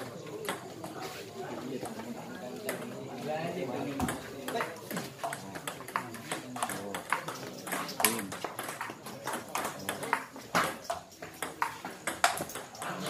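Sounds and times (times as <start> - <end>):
table tennis ball clicking: 4.0 - 13.0.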